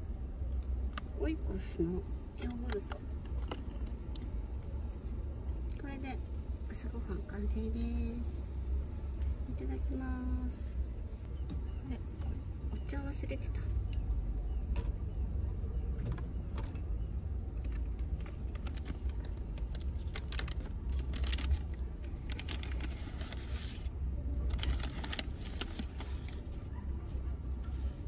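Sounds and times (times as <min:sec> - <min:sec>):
plastic bottle crinkling and clicking: 0:17.6 - 0:23.4.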